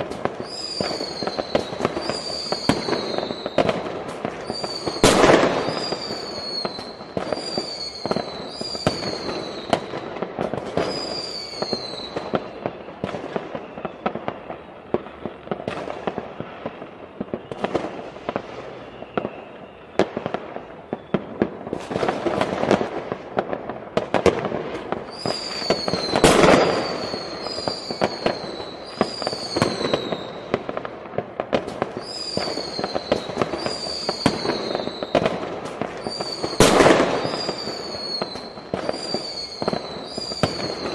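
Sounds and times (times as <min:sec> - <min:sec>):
fireworks bangs and crackles: 0:00.0 - 0:40.9
short falling whistles: 0:00.4 - 0:03.7, 0:04.4 - 0:09.8, 0:10.8 - 0:12.3, 0:18.6 - 0:20.1, 0:20.8 - 0:21.4, 0:25.1 - 0:30.4, 0:32.0 - 0:35.2, 0:36.0 - 0:40.9.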